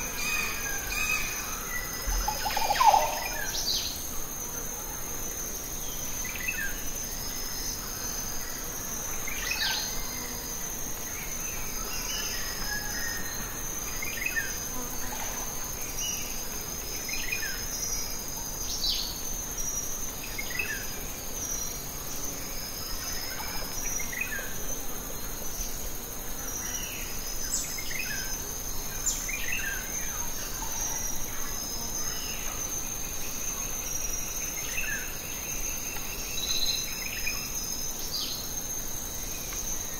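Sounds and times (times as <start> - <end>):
high-pitched insect chorus: 0.0 - 39.9.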